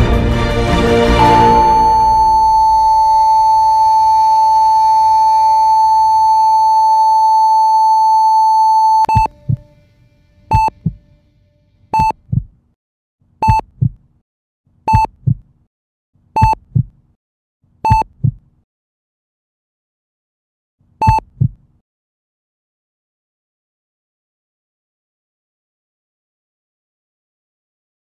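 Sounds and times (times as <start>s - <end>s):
heart monitor beeps: 1.2s - 9.6s, 10.5s - 11.0s, 12.0s - 12.5s, 13.4s - 13.9s, 14.9s - 15.4s, 16.4s - 16.9s, 17.9s - 18.4s, 21.0s - 21.5s
heart monitor flatline tone: 1.2s - 9.6s, 10.5s - 11.0s, 12.0s - 12.5s, 13.4s - 13.9s, 14.9s - 15.4s, 16.4s - 16.9s, 17.9s - 18.4s, 21.0s - 21.5s
low heartbeat thump: 9.1s - 9.6s, 10.5s - 11.0s, 12.0s - 12.6s, 13.5s - 14.0s, 14.9s - 15.4s, 16.5s - 16.9s, 18.0s - 18.4s, 21.2s - 21.6s.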